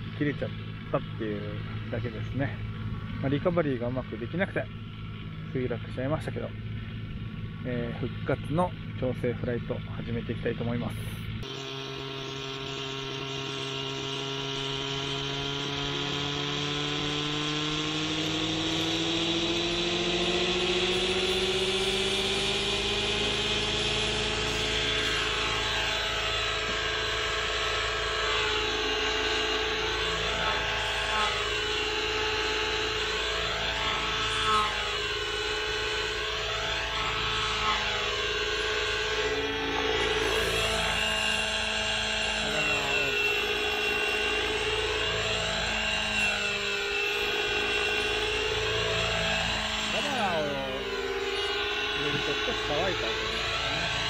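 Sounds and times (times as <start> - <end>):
model helicopter engine whine: 0.0 - 54.0.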